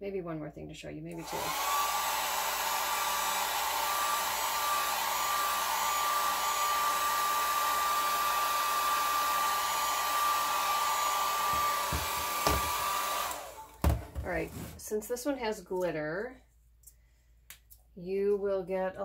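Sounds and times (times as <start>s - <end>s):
hair dryer running: 1.1s - 14.7s.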